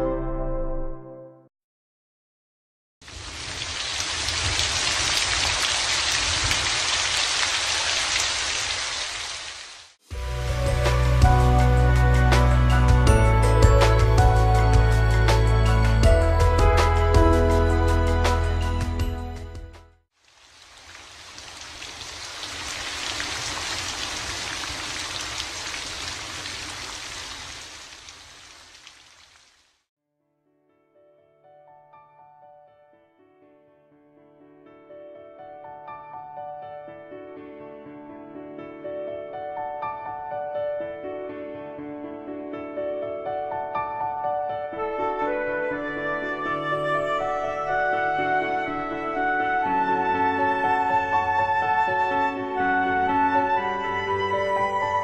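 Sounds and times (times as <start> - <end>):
steady rain: 3.0 - 11.2, 20.2 - 29.8.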